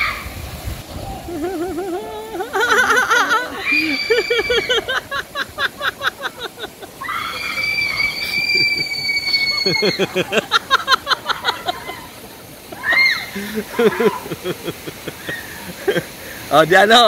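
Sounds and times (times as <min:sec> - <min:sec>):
person screaming: 0:01.2 - 0:04.9
bursts of laughter: 0:01.2 - 0:07.2, 0:08.2 - 0:16.2.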